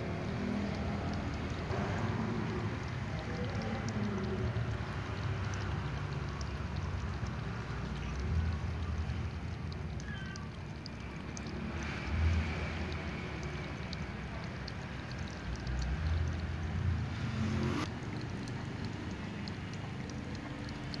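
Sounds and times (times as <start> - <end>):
cat lapping water: 0.0 - 21.0.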